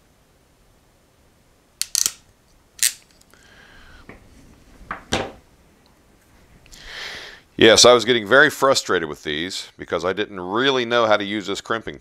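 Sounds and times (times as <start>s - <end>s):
ratcheting crimp tool clicking: 1.8s - 2.2s, 2.8s - 3.2s.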